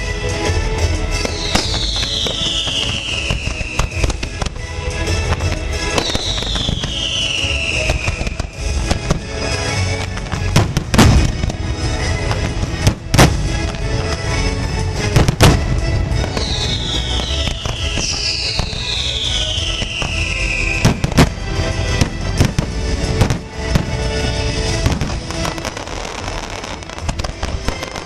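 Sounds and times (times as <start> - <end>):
fireworks crackling and banging: 0.0 - 28.0
music from loudspeakers: 0.0 - 28.0
falling firework whistles: 1.2 - 4.6, 5.2 - 9.1, 16.2 - 21.4.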